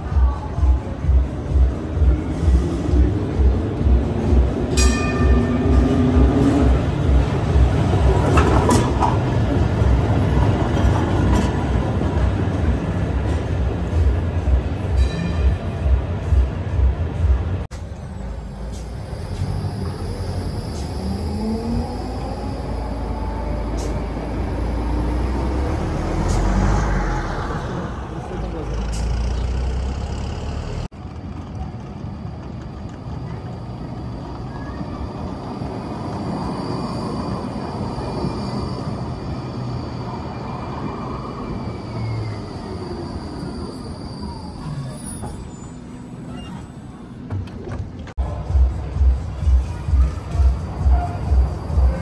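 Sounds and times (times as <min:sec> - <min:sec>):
heavy vehicle rumbling: 0:00.0 - 0:43.3
vehicle passing with falling whine: 0:18.4 - 0:28.6
music with steady beat: 0:48.2 - 0:52.0.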